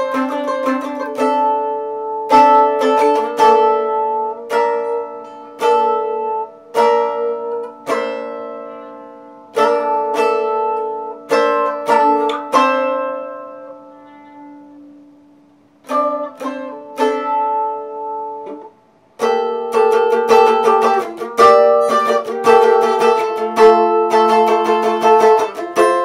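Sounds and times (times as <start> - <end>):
acoustic mandolin playing: 0.0 - 26.0.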